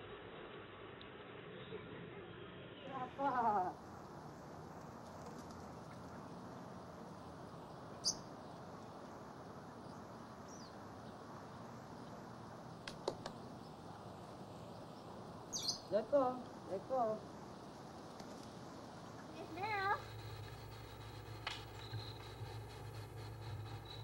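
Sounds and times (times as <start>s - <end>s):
outdoor background hiss: 0.0s - 24.0s
high bird chirp: 15.5s - 15.9s.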